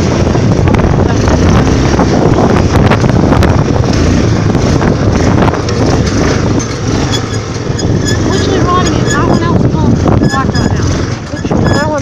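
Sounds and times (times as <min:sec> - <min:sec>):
atv engine rumbling: 0:00.0 - 0:12.0
wind buffeting microphone: 0:00.0 - 0:12.0.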